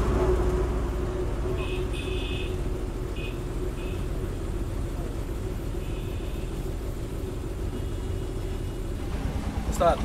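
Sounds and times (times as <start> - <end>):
bus engine and road rumble: 0.0 - 10.0.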